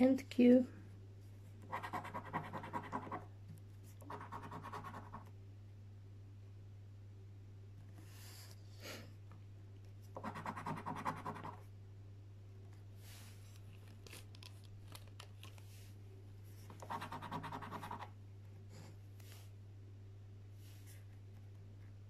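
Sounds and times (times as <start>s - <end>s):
coin scratching a scratchcard: 1.7s - 3.2s, 4.1s - 5.2s, 10.2s - 11.6s, 16.8s - 18.1s.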